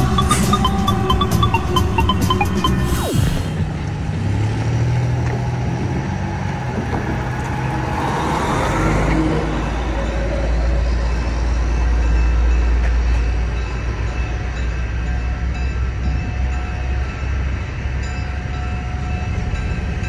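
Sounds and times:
truck engine deep rumble: 0:00.0 - 0:20.0
car passing: 0:02.8 - 0:13.4.

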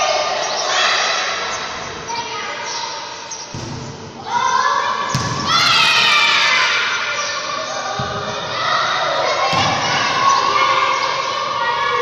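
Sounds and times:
voices and shouts echoing: 0:00.0 - 0:12.0.

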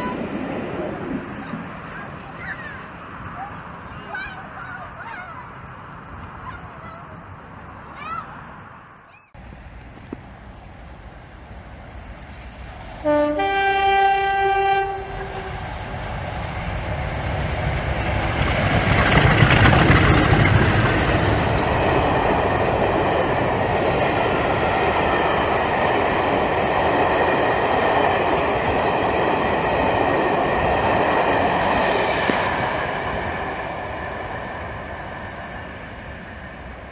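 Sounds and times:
train coaches clickety-clack: 0:00.0 - 0:07.3, 0:11.6 - 0:36.9
diesel locomotive engines rumbling: 0:00.0 - 0:36.9
two-tone train horn: 0:13.0 - 0:15.6.

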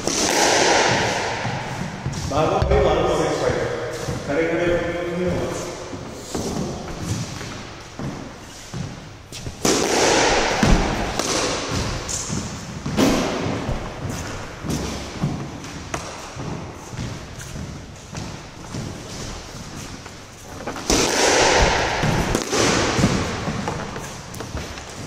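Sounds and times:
squash ball knocks: 0:00.0 - 0:02.0, 0:09.6 - 0:14.1, 0:20.7 - 0:25.0.

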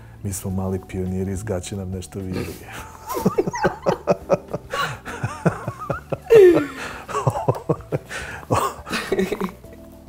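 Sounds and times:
person laughing: 0:02.4 - 0:09.6.

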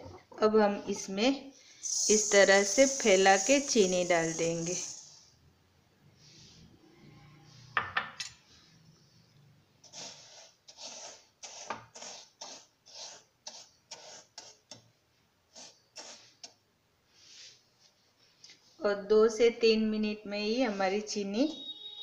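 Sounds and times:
gritty sugar scraping: 0:09.8 - 0:14.6.

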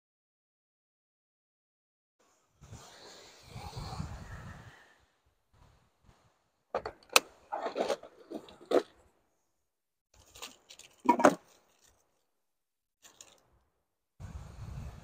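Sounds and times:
rustling and scraping in cooler: 0:06.8 - 0:08.9, 0:10.2 - 0:12.0.

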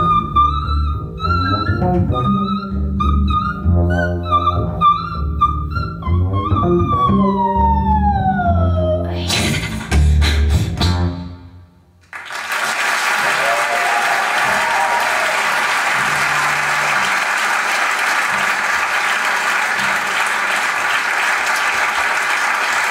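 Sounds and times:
audience applause: 0:12.0 - 0:22.9.

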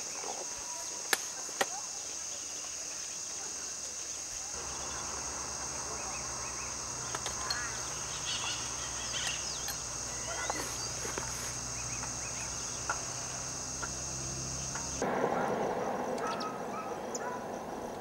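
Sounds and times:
insects droning: 0:00.0 - 0:18.0
bird chirping: 0:04.6 - 0:15.0.

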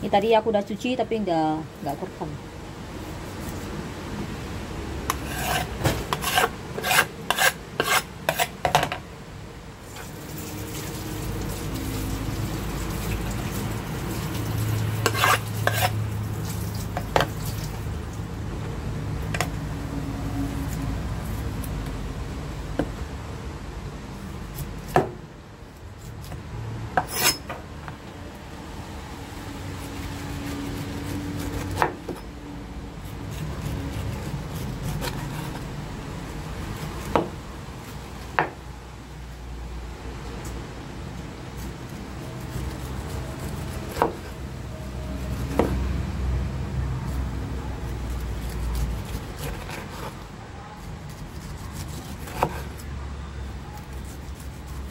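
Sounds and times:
cleaver scraping pineapple rind: 0:03.0 - 0:03.8, 0:05.1 - 0:08.6, 0:09.8 - 0:18.0, 0:29.7 - 0:32.3, 0:33.0 - 0:38.1, 0:41.5 - 0:46.0, 0:47.0 - 0:54.9.

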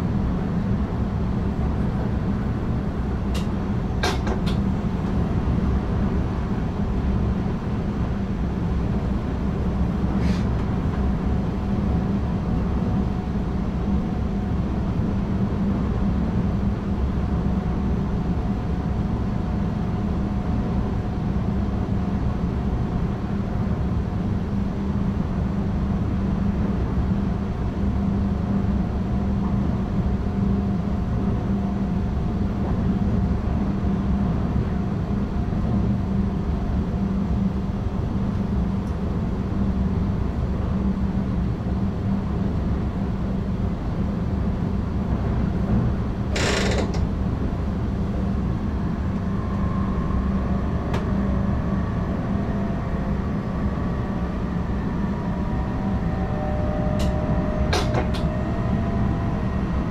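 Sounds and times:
train rumble and drive hum: 0:00.0 - 0:59.9
creaking in train cab: 0:46.3 - 0:47.2, 0:57.0 - 0:58.3.

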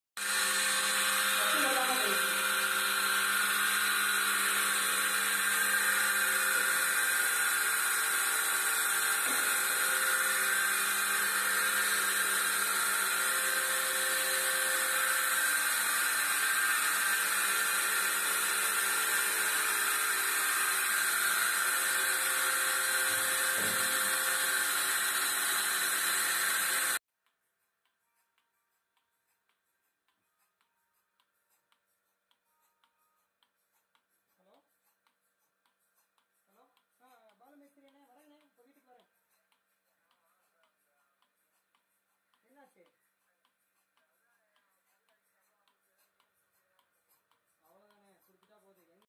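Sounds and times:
vacuum pump whining and hissing: 0:00.2 - 0:27.0.

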